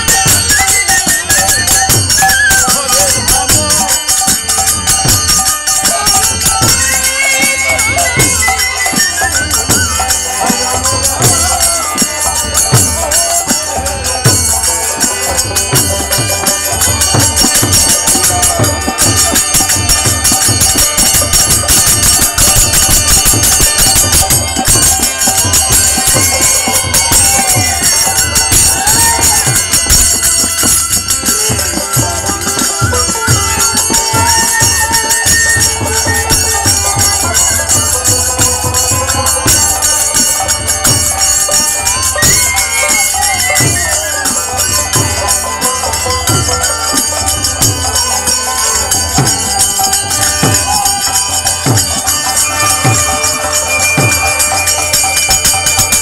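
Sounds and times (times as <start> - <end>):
drum beats: 0.0 - 56.0
hand cymbals jingling: 0.0 - 56.0.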